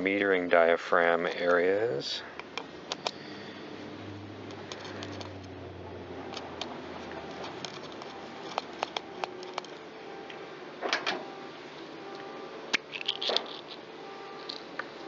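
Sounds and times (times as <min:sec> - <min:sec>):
small metal parts clicking and tapping: 0:07.4 - 0:09.8, 0:14.4 - 0:14.7.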